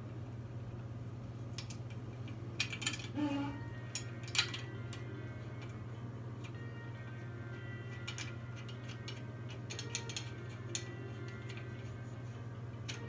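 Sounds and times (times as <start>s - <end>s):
steady low hum: 0.0s - 13.0s
metallic clicks and clinks: 1.6s - 3.2s, 3.9s - 5.0s, 7.9s - 11.8s.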